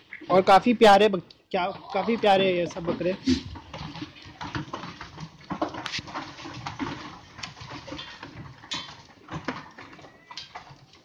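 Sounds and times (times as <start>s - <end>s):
goats knocking plastic crates: 1.9s - 11.0s.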